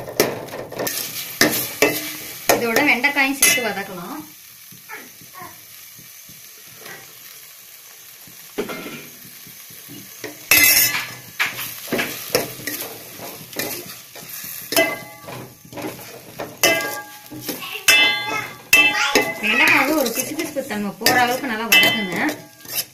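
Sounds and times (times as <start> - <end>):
faint sizzle: 0.0 - 22.9
ladle scraping metal pot: 10.2 - 22.9.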